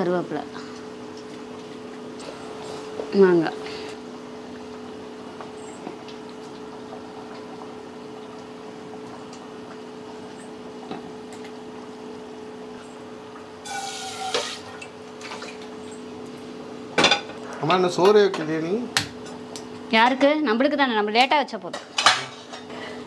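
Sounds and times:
curry bubbling in a pot: 0.0 - 16.8.

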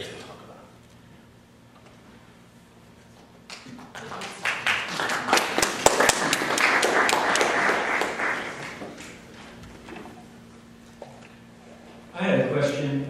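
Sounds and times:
audience applauding: 3.5 - 9.4.

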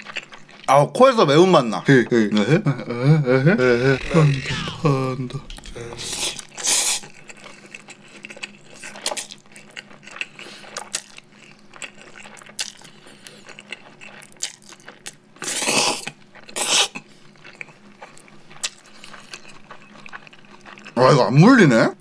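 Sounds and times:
person slurping noodles: 3.3 - 7.2, 15.4 - 17.1
wet mouth sounds: 3.6 - 8.0, 15.4 - 17.1.

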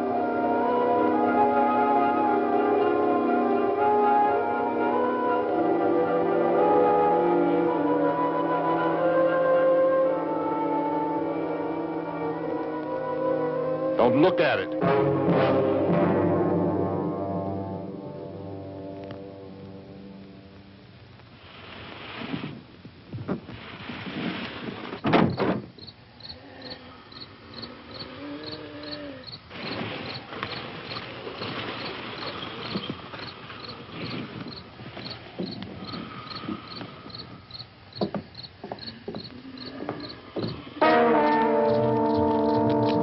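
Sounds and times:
knocks and thump: 25.0 - 25.9, 35.0 - 37.2, 37.9 - 40.6
crickets chirping: 25.2 - 40.8, 41.7 - 43.0.

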